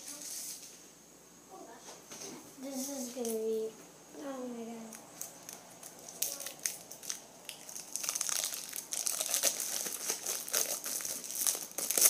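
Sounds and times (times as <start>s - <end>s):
plastic wrapper crinkling: 4.9s - 12.0s.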